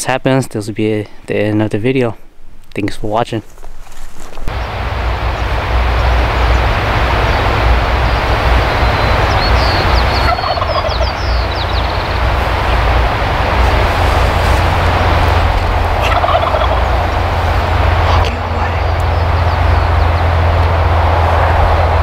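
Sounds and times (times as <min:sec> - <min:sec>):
loud steady rushing noise: 0:04.5 - 0:22.0
small bird chirping: 0:08.0 - 0:12.8
turkey gobbling: 0:08.3 - 0:12.9, 0:15.9 - 0:19.9.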